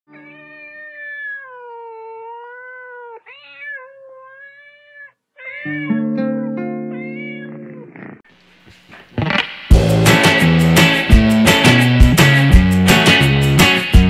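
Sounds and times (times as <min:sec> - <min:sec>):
cat meowing: 0:00.1 - 0:08.2
music: 0:05.9 - 0:07.8, 0:09.2 - 0:14.0.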